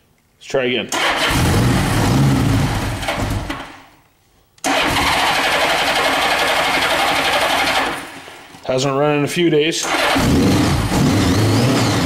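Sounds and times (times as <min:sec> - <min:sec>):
motorcycle engine cranking on starter: 0:01.0 - 0:01.5, 0:04.6 - 0:08.2, 0:09.8 - 0:11.0.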